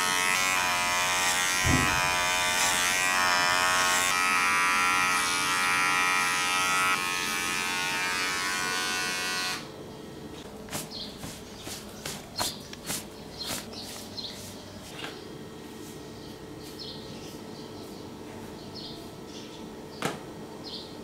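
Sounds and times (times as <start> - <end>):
electric hair clipper buzzing: 0.0 - 9.8.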